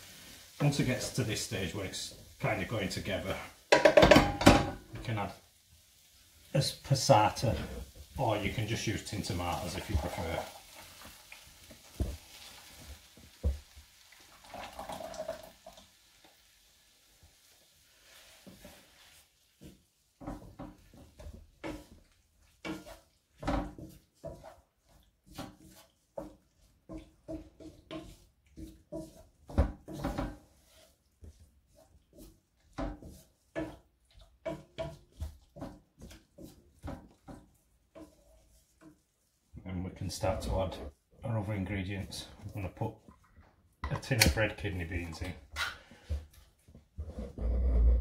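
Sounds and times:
sauce pouring into a pan: 0.0 - 3.8, 5.0 - 20.1
wooden spoon scraping a pan: 0.0 - 14.1, 16.4 - 48.0.

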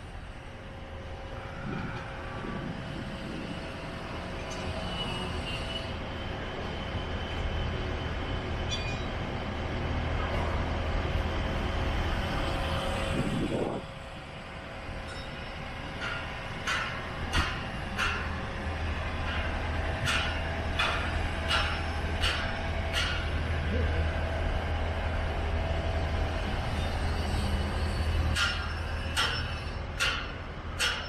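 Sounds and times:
passing train rumble: 0.0 - 31.0.

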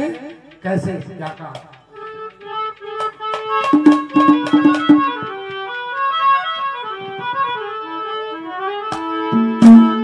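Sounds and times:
sharp hand-drum strokes: 0.0 - 5.4, 9.4 - 10.0
harmonium melody: 1.5 - 10.0.

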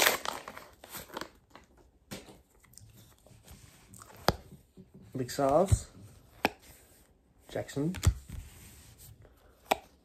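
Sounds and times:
wrapper tearing and crinkling: 0.0 - 1.7.

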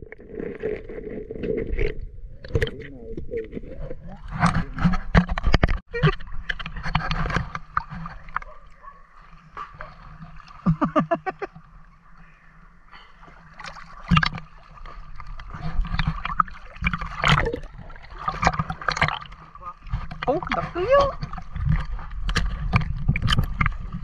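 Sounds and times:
water sloshing and gurgling: 0.0 - 24.0
sharp water splashes: 13.4 - 24.0.

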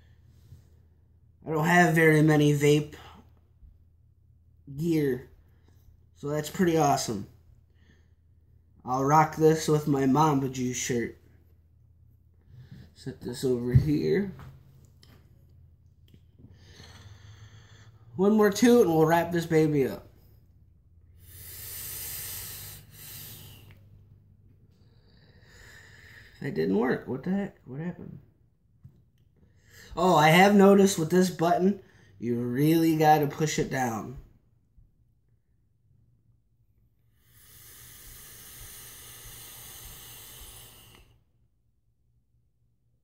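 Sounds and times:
hissing vape pull: 37.4 - 41.0.

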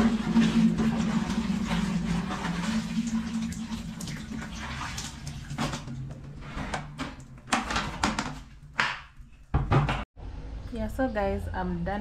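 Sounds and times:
water sloshing in bucket: 0.0 - 6.4.

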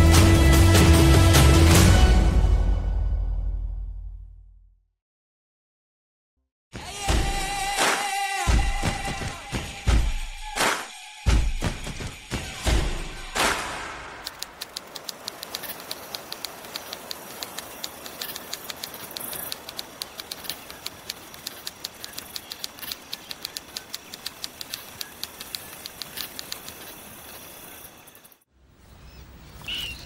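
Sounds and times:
steady hiss: 11.7 - 28.3.

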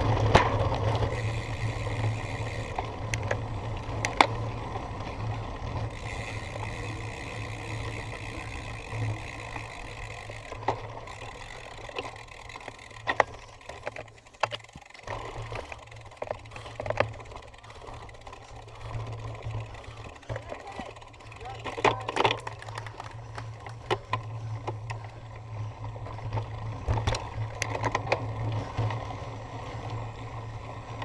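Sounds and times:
bike knocks and rattles: 0.0 - 4.4, 8.0 - 17.4, 20.2 - 25.0, 26.2 - 29.0
bike rumbling over rough ground: 0.0 - 31.0.

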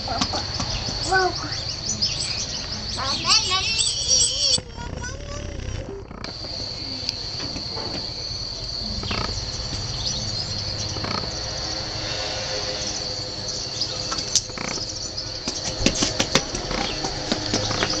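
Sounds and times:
crickets trilling: 0.0 - 18.0.

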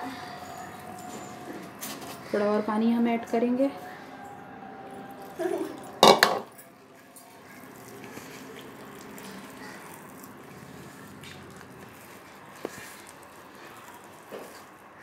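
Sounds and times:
hand squishing thick batter: 7.4 - 15.0.

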